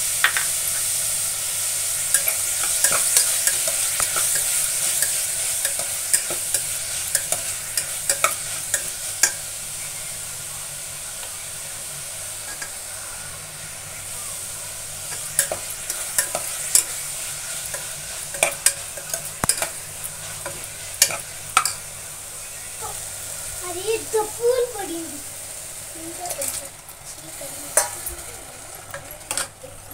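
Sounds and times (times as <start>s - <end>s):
onions sizzling in a pot: 0.0s - 29.9s
metal spatula clinking and scraping: 2.1s - 9.4s, 27.7s - 28.2s, 28.9s - 29.6s.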